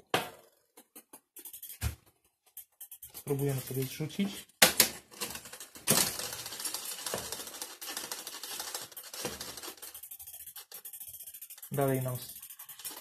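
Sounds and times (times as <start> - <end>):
chain rubbing on derailleur: 1.3 - 4.4, 5.2 - 13.0
bicycle chain ticking rattle: 5.1 - 13.0.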